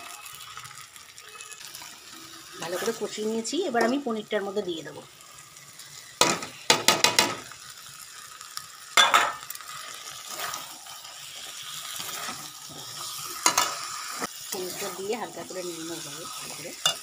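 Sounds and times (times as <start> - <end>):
food sizzling: 0.0 - 17.0
metal spatula scraping a pan: 1.8 - 4.1, 9.0 - 17.0.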